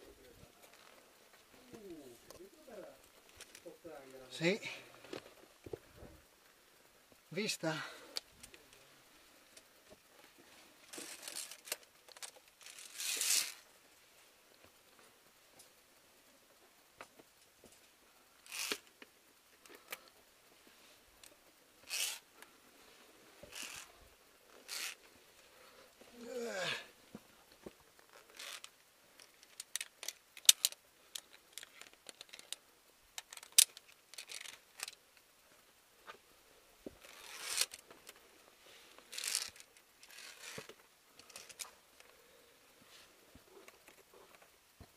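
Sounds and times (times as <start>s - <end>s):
carabiners clinking on steel cable: 10.9s - 13.6s, 18.4s - 19.0s, 21.8s - 22.2s, 23.5s - 25.0s, 28.0s - 32.6s, 33.2s - 35.0s, 37.0s - 38.2s, 39.1s - 42.1s
gear scraping against rock: 10.9s - 13.6s, 21.8s - 22.2s, 23.5s - 25.0s, 28.1s - 28.7s, 37.0s - 37.8s, 39.1s - 41.7s
sharp carabiner clacks: 29.3s - 32.6s.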